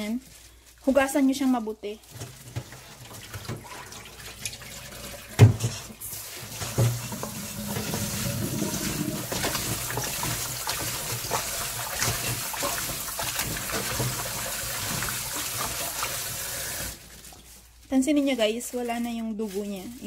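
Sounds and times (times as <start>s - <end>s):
tap running water: 2.1s - 17.5s
hands sloshing meat in water: 6.1s - 17.7s.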